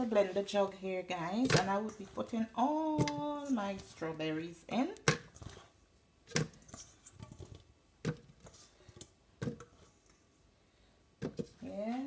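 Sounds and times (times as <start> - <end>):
strawberries dropping into plastic jug: 11.2 - 11.6.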